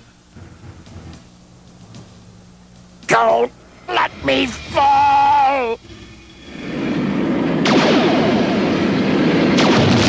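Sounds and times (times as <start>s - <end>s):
sharp crack: 7.5s - 10.0s.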